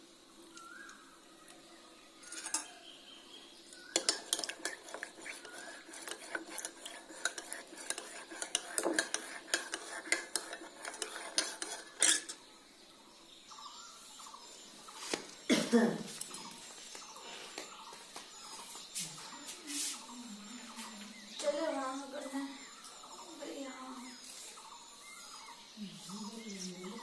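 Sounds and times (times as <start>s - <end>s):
spoon clinking in ceramic mug: 2.3s - 2.7s, 4.0s - 12.4s.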